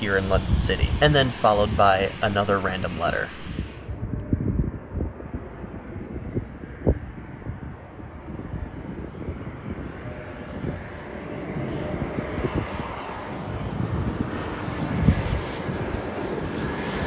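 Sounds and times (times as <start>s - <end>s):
faint steady whine: 0.0s - 7.9s
low rumble: 0.0s - 10.0s
jet airliner engines: 0.0s - 17.0s.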